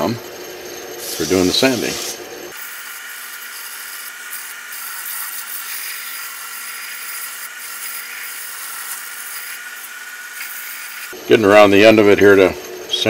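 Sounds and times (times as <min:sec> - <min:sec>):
wood lathe motor hum: 0:00.0 - 0:13.0
sandpaper hissing on spinning wood: 0:01.0 - 0:11.2.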